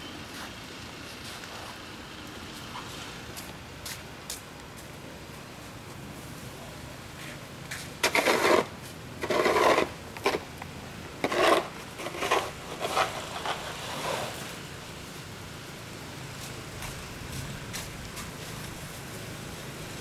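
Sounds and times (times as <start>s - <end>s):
snow shovel scraping brick paving: 7.2s - 14.7s.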